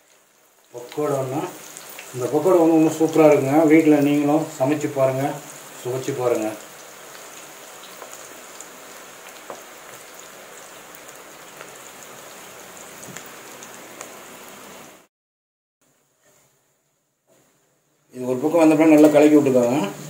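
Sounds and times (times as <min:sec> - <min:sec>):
food deep-frying in oil: 0:00.0 - 0:15.1, 0:18.0 - 0:20.0.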